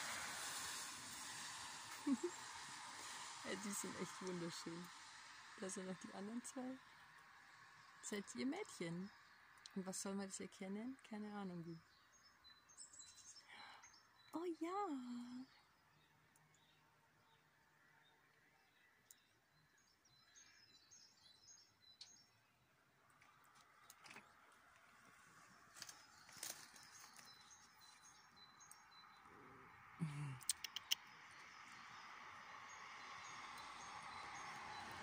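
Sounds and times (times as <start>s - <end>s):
small birds chirping: 0.4s - 35.0s
sharp clicks: 30.4s - 31.1s.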